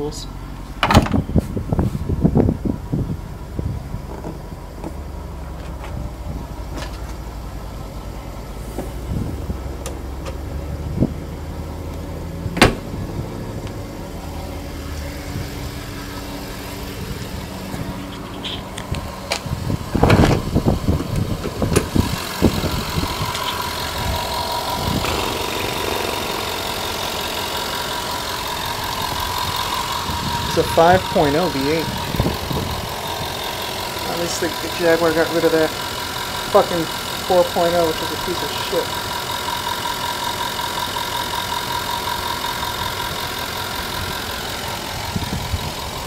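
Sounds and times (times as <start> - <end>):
car engine idling: 0.0 - 46.0
sharp thump: 12.6 - 13.0.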